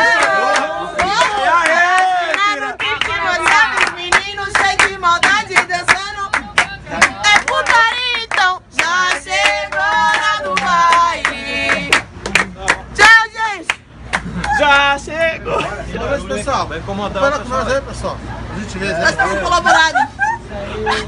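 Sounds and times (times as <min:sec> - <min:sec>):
people singing: 0:00.0 - 0:12.1
people clapping a steady beat: 0:00.0 - 0:13.0, 0:13.6 - 0:14.6.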